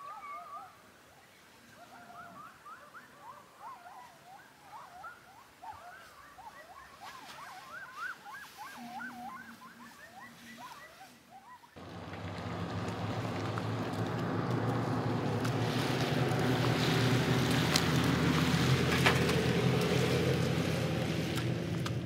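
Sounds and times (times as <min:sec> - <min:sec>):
truck engine hum: 0:11.8 - 0:22.0.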